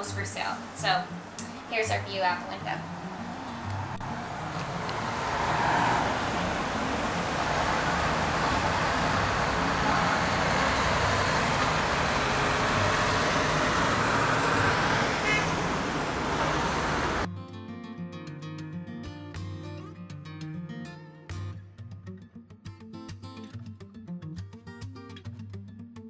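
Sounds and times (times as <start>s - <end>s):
city street traffic: 0.0s - 17.3s.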